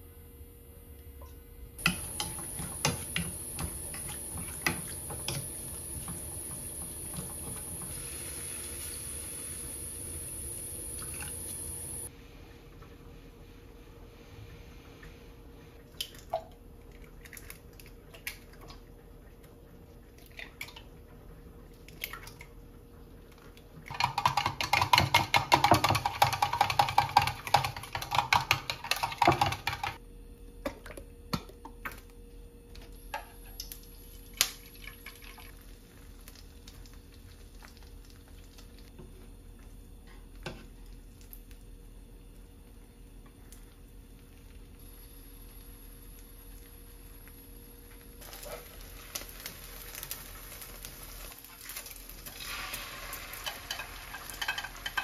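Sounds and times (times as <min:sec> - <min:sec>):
chopsticks beating eggs in glass: 0:23.9 - 0:30.0.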